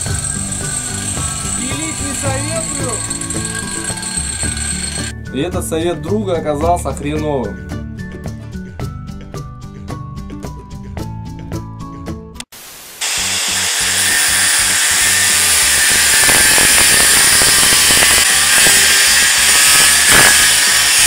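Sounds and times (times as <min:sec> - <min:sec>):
angle grinder cutting metal pipe: 0:00.0 - 0:05.1, 0:13.0 - 0:21.0
plucked background music: 0:00.0 - 0:12.4.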